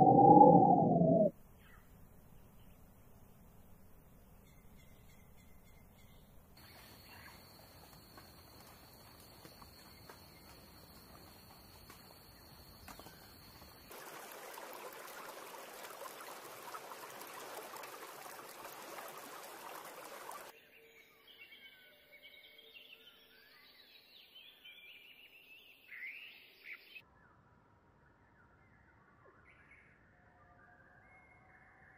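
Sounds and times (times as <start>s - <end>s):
high-pitched whine: 0.0s - 1.3s
rushing noise: 0.0s - 1.3s.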